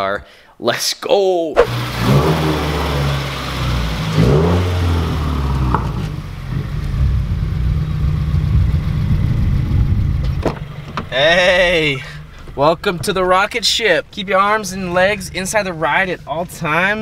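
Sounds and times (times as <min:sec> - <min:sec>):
car engine revving and droning: 0:01.6 - 0:12.5.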